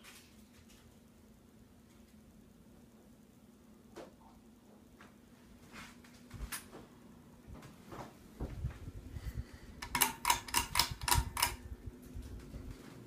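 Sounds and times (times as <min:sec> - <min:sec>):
ceiling fan motor hum: 0:00.0 - 0:13.0
sharp clicks: 0:09.8 - 0:11.6.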